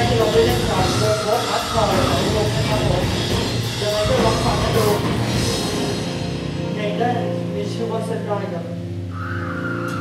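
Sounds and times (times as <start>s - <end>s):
rock band playing live: 0.0s - 6.9s.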